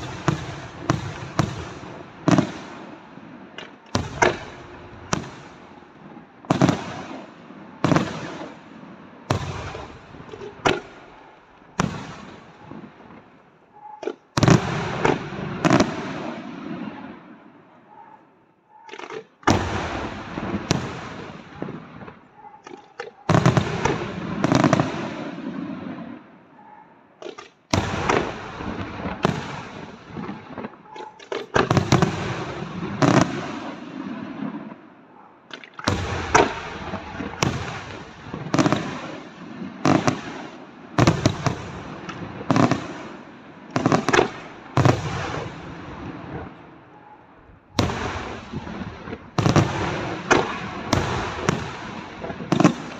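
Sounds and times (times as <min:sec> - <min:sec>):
firework shells bursting with echo: 0:00.0 - 0:08.6.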